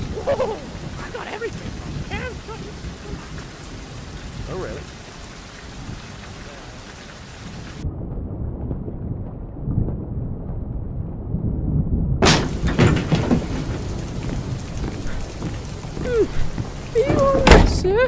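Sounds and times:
steady rain: 0:00.0 - 0:07.8, 0:12.2 - 0:18.0
low thunder rumble: 0:00.0 - 0:18.0
heavy door opening with clunks: 0:12.2 - 0:13.9, 0:17.0 - 0:17.9.

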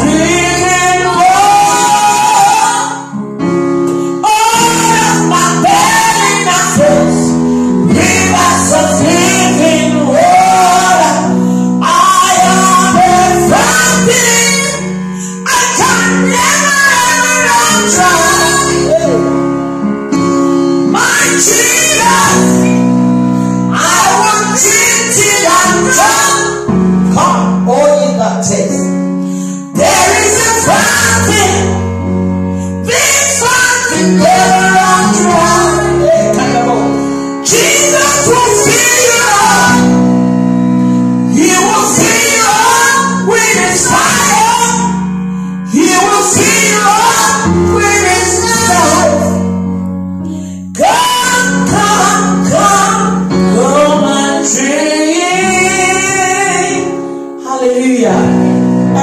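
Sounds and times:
woman singing gospel song: 0:00.0 - 0:03.1, 0:04.2 - 0:19.4, 0:20.8 - 0:22.9, 0:23.7 - 0:28.9, 0:29.6 - 0:32.1, 0:32.8 - 0:40.2, 0:41.2 - 0:49.4, 0:50.7 - 0:59.0.

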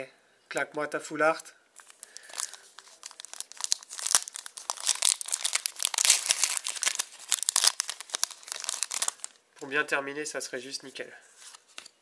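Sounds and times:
foil wrapper crinkling and tearing: 0:01.8 - 0:09.4.

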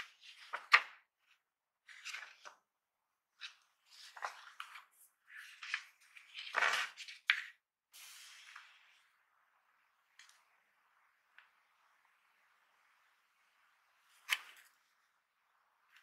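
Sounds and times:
paper pages rustling: 0:00.0 - 0:00.9, 0:01.9 - 0:02.6, 0:03.4 - 0:07.5.

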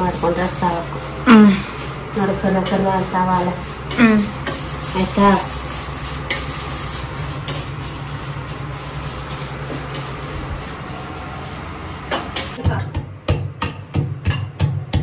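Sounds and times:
leaves sizzling in pan: 0:00.0 - 0:12.6
spatula scraping: 0:00.7 - 0:12.6.

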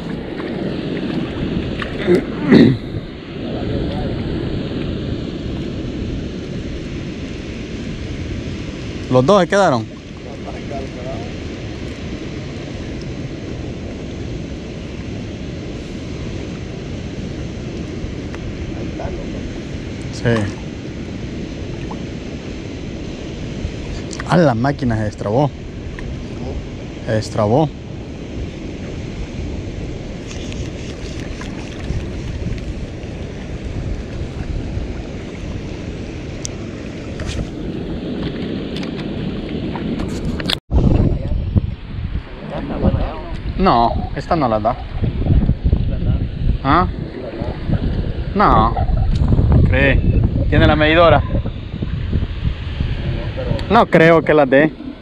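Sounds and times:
wind rumbling on microphone: 0:00.0 - 0:55.0.

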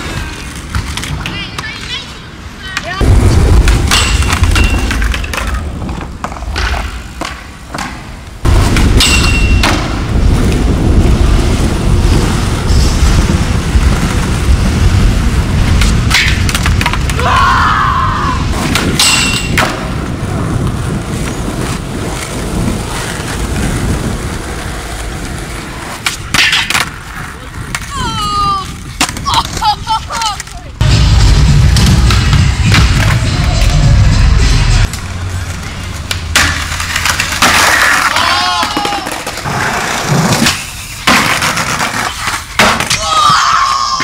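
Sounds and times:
skateboard clicks and knocks: 0:00.0 - 0:03.0, 0:03.6 - 0:10.6, 0:15.6 - 0:17.2, 0:18.6 - 0:30.8, 0:34.8 - 0:43.2
skateboard wheels rolling on asphalt: 0:00.0 - 0:44.0.

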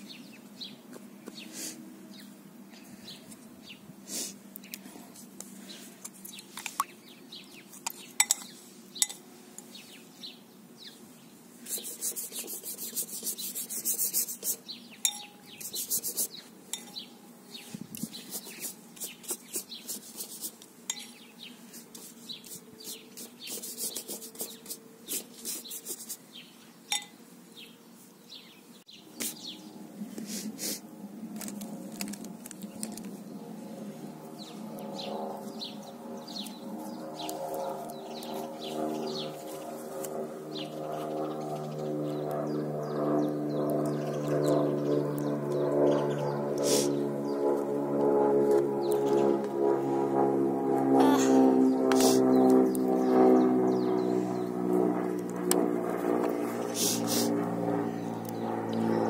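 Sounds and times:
brush stroking paper: 0:11.6 - 0:14.7, 0:15.5 - 0:16.5, 0:17.6 - 0:26.3.

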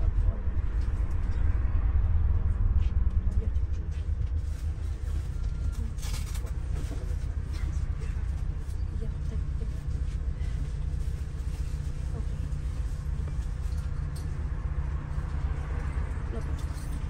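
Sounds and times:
bus engine rumbling: 0:00.0 - 0:17.0.

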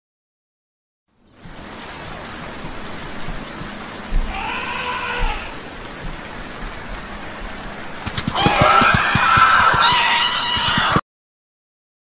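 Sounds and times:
steady rain falling: 0:01.2 - 0:11.0
low thumps: 0:02.5 - 0:04.4, 0:05.2 - 0:09.9
animal cry: 0:04.2 - 0:05.7, 0:08.2 - 0:11.0.

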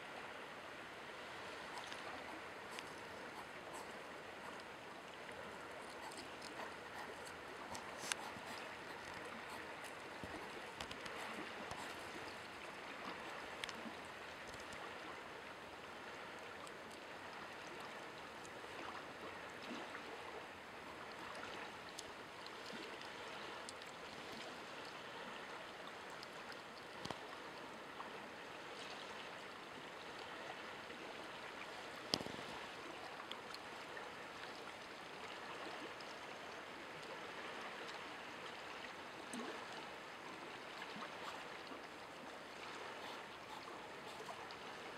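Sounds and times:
faint ticks: 0:01.8 - 0:04.8, 0:05.7 - 0:12.4, 0:13.0 - 0:13.8, 0:14.4 - 0:14.8, 0:16.6 - 0:17.0, 0:21.1 - 0:24.5, 0:26.1 - 0:27.3.

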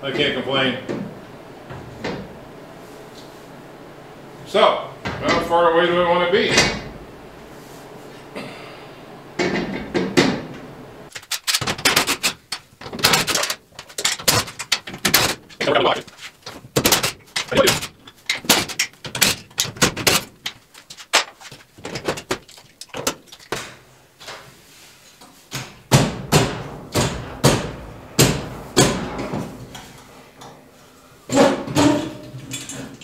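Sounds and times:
metal clunks and knocks: 0:09.4 - 0:10.6, 0:25.5 - 0:30.6, 0:31.3 - 0:33.0.

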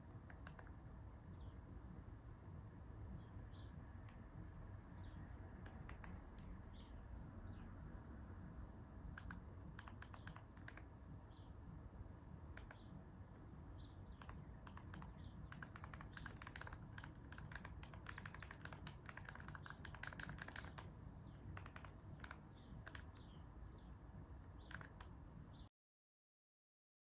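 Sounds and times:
buttons clicking: 0:05.6 - 0:06.9, 0:09.2 - 0:10.9, 0:14.1 - 0:23.4, 0:24.5 - 0:25.2.

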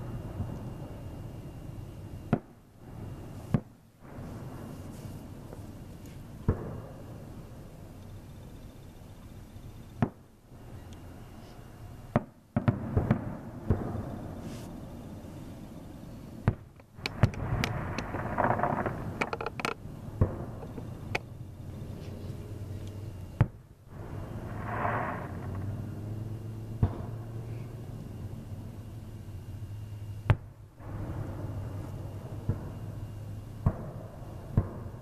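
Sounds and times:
fireworks bangs: 0:02.2 - 0:07.6, 0:12.1 - 0:15.1, 0:16.4 - 0:22.3, 0:23.3 - 0:28.9, 0:30.2 - 0:35.0.

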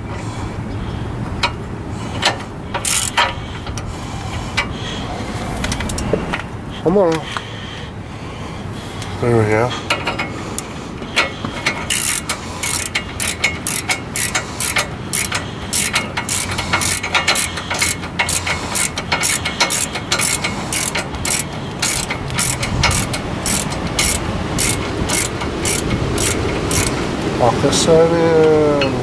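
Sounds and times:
ratchet wrench clicking: 0:02.2 - 0:03.9, 0:11.2 - 0:27.1.

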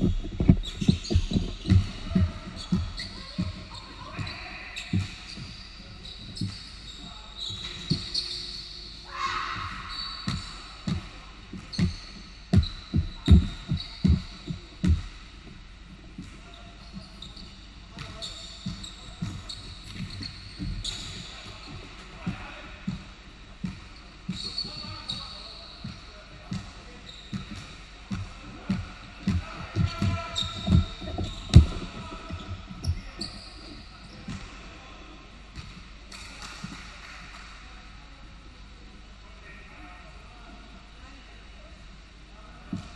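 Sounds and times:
basketball dribbled on hardwood floor: 0:00.0 - 0:05.6, 0:10.3 - 0:15.2, 0:27.3 - 0:33.5
sneaker squeaks: 0:00.0 - 0:15.3, 0:16.2 - 0:34.6.

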